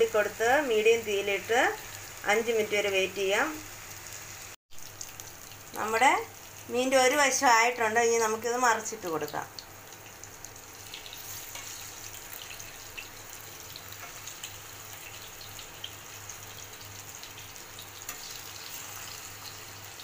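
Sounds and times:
fish sizzling in oil: 0.0s - 20.0s.

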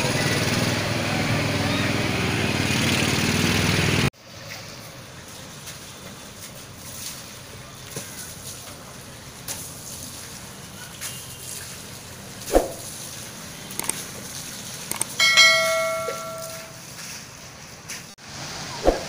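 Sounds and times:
outdoor background noise: 0.0s - 19.0s
quick clicks: 13.7s - 14.0s, 14.9s - 15.2s
bell ding: 15.2s - 16.8s.

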